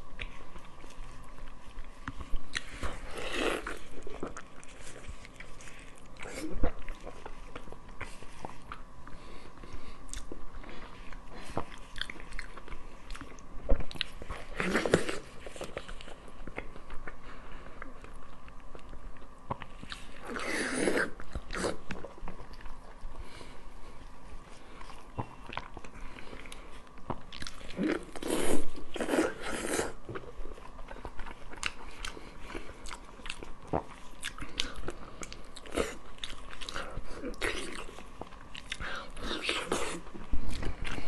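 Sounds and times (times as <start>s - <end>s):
wet chewing and lip-smacking: 10.0s - 17.2s, 24.0s - 41.0s.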